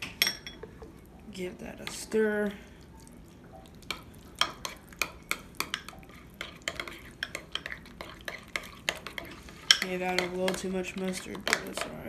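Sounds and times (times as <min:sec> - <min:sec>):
utensil scraping glass bowl: 0:06.1 - 0:12.0.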